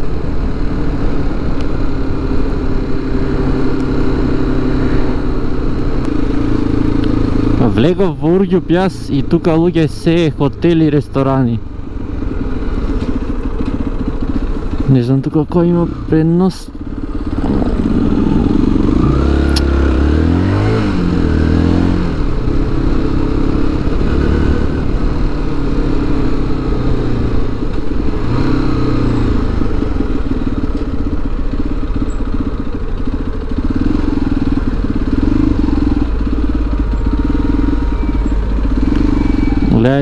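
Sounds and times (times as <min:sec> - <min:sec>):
motorcycle engine running: 0:00.0 - 0:40.0.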